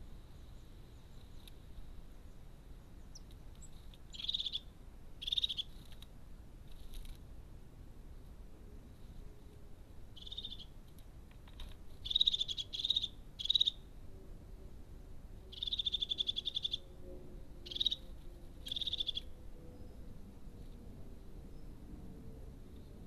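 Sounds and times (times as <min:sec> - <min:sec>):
bird rattling trill calls: 0:03.1 - 0:05.9, 0:10.2 - 0:10.7, 0:12.0 - 0:13.8, 0:15.5 - 0:16.9, 0:17.6 - 0:19.3.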